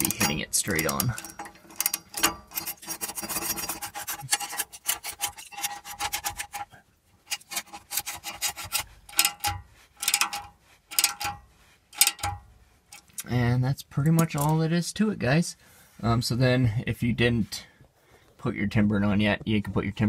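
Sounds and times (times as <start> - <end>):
ratcheting wrench clicking: 0.0 - 6.4, 7.3 - 13.3.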